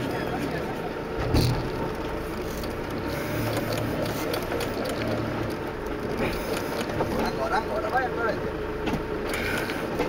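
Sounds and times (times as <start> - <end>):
vehicle engine running low: 0.0 - 10.0
small clicks and rattles: 1.4 - 8.0.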